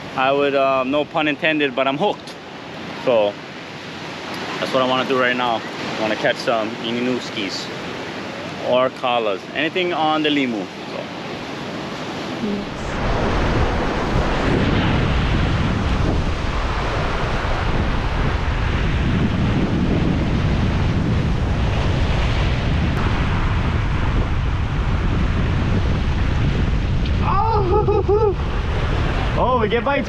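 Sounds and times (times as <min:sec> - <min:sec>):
surf breaking on rocky shoreline: 0:00.0 - 0:30.0
wind buffeting microphone: 0:10.6 - 0:30.0.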